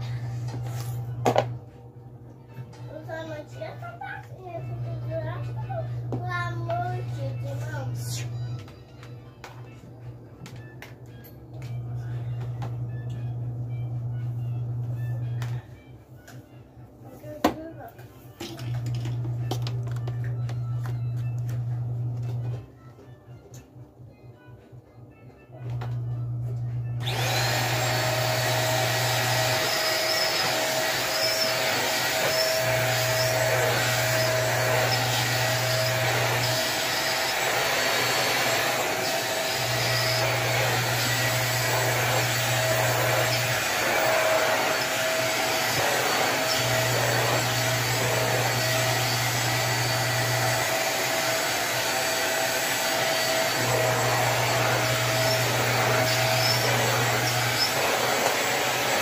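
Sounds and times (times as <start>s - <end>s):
vacuum cleaner running on rug: 0.0s - 1.6s, 25.7s - 59.0s.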